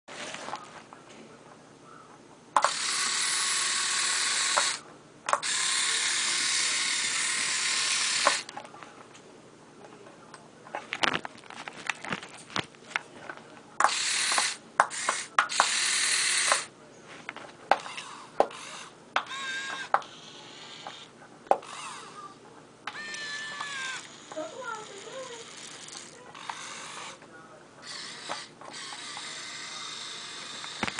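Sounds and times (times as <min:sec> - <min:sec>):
small electric motors whining: 0:02.6 - 0:08.5, 0:13.8 - 0:16.7, 0:17.8 - 0:22.3, 0:22.9 - 0:27.2, 0:27.8 - 0:30.9.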